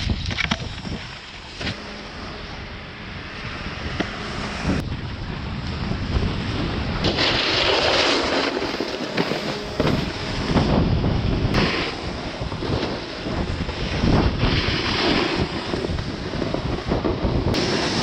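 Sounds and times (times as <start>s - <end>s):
wind rushing over microphone: 0.0s - 18.0s
snowboard scraping across snow: 1.2s - 4.8s, 5.4s - 18.0s.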